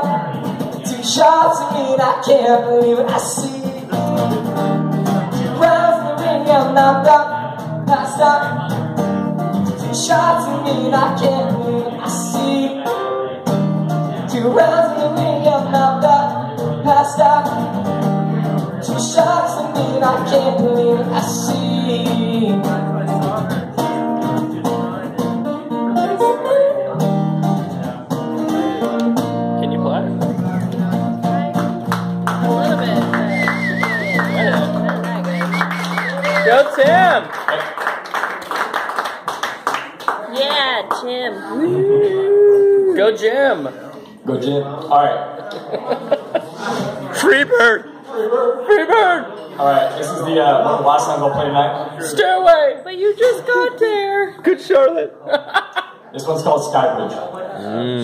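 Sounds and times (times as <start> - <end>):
man singing: 0.0 - 8.8, 9.8 - 13.4, 14.1 - 17.8, 18.5 - 23.6
acoustic guitar: 0.0 - 37.4, 45.2 - 55.2.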